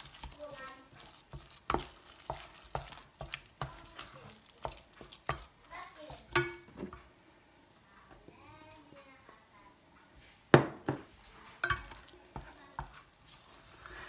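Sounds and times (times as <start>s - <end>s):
wooden spoon beating dough in pan: 0.0s - 7.3s, 10.5s - 14.0s.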